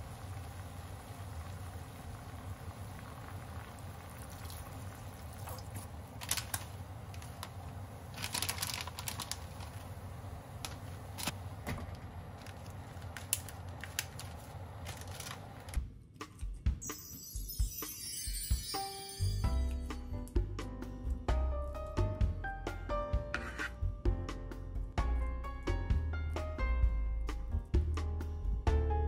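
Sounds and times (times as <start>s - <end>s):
pot simmering with faint bubbling: 0.0s - 15.7s
liquid poured into pot: 2.0s - 6.6s.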